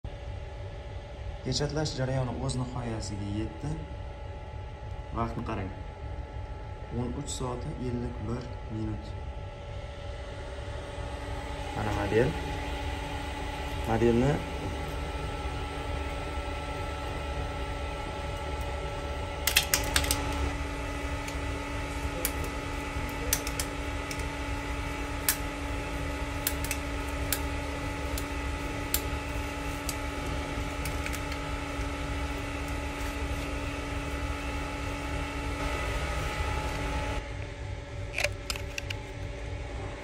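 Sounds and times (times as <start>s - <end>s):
steady fan hum: 0.0s - 40.0s.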